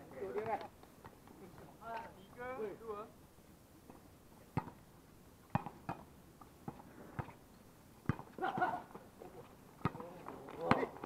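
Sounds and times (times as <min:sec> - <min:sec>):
volleyball being hit: 0:05.5 - 0:06.1.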